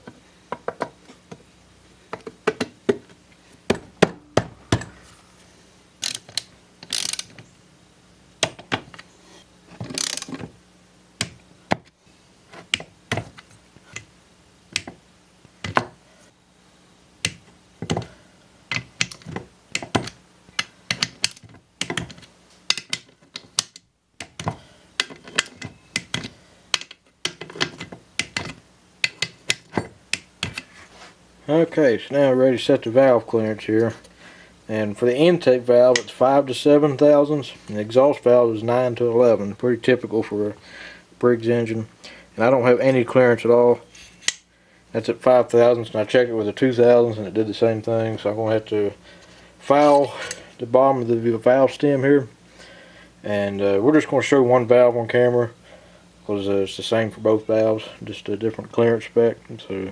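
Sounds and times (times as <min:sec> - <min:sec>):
socket ratchet clicking: 0:06.0 - 0:07.4, 0:10.0 - 0:10.4.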